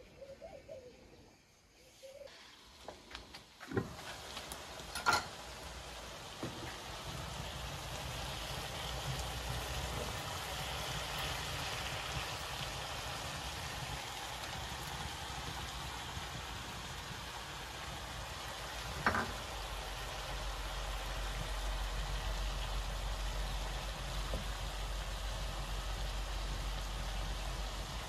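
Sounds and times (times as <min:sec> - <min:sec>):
food sizzling in a frying pan: 0:02.3 - 0:28.0
wooden spoon knocking on pan: 0:18.9 - 0:19.4.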